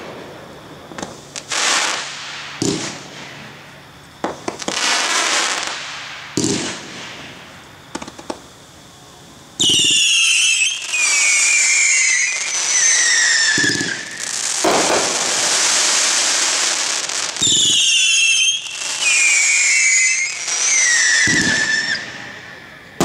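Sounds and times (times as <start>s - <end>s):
firework whistles: 0.0s - 23.0s
steady hiss: 0.0s - 23.0s
firework launch thumps: 2.4s - 3.4s.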